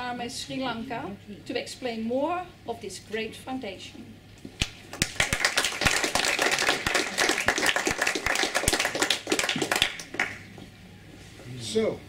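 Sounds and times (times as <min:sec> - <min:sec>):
audience applauding: 0:04.6 - 0:10.5.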